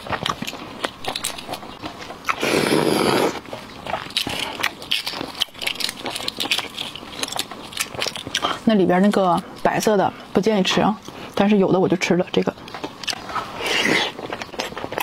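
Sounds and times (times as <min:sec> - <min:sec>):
shell crushing and crinkling: 0:00.0 - 0:09.6
eggshell crackling: 0:00.0 - 0:09.9.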